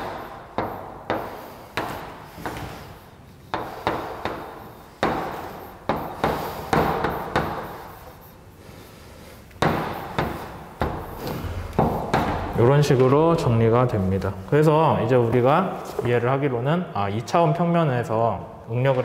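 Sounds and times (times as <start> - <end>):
chalk tapping and scratching on blackboard: 0.0 - 13.2.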